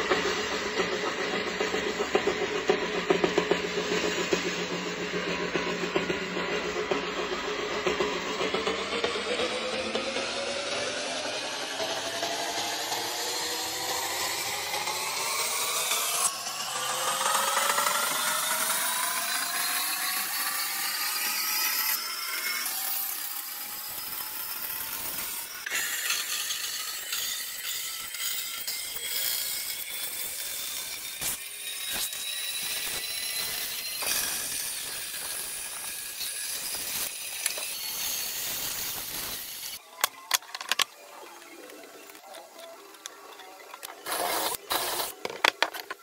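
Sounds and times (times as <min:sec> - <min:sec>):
rough wood cutting sound: 0:00.0 - 0:40.9, 0:42.0 - 0:46.0
power tool motor whine: 0:08.2 - 0:39.8, 0:43.8 - 0:46.0.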